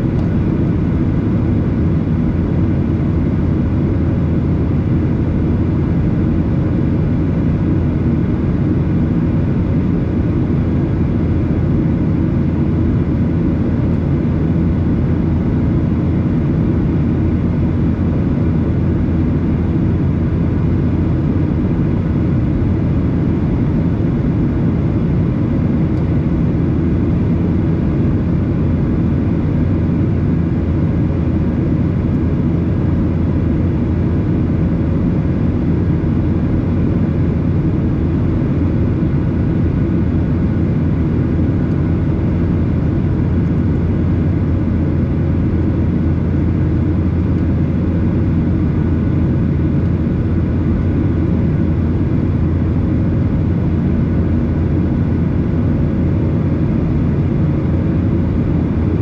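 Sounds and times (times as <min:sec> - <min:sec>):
jet engine low rumble: 0:00.0 - 0:59.0.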